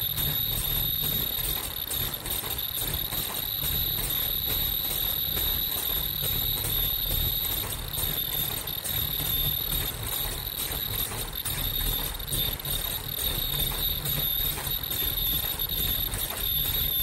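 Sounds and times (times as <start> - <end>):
machine low hum: 0.0 - 17.0
welding machine whine: 0.0 - 17.0.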